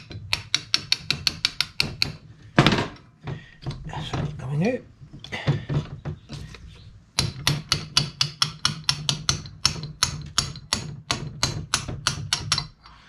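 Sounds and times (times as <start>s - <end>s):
hammer tapping metal drift: 7.1s - 13.0s.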